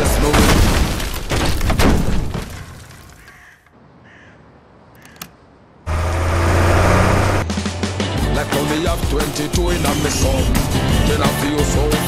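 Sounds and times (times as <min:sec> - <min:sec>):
faint bird calls: 0:03.2 - 0:05.4
click: 0:04.9 - 0:05.4.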